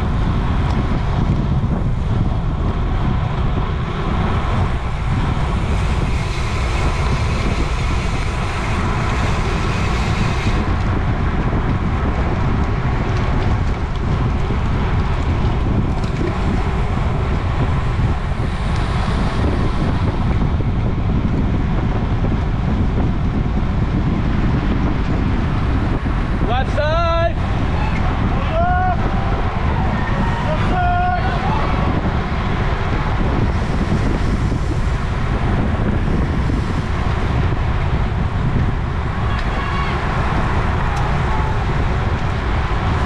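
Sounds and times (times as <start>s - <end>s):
wind buffeting microphone: 0.0s - 43.0s.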